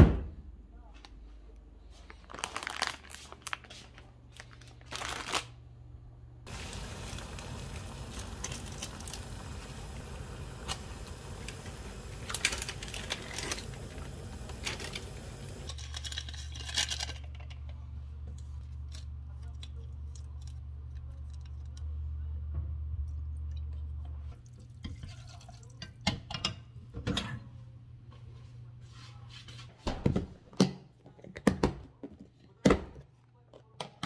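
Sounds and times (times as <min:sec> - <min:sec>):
low hum: 0:05.8 - 0:15.7
noodles bubbling in saucepan: 0:06.4 - 0:16.4, 0:24.2 - 0:26.6.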